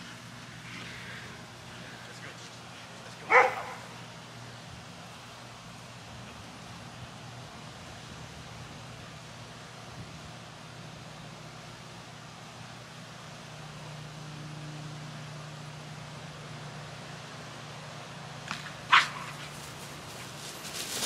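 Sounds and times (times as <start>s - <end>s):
dog barking: 3.3s - 4.0s, 18.9s - 19.4s.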